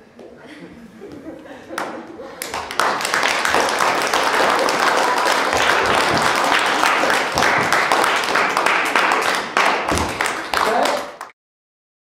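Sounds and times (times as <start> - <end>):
audience applauding: 1.8 - 11.4.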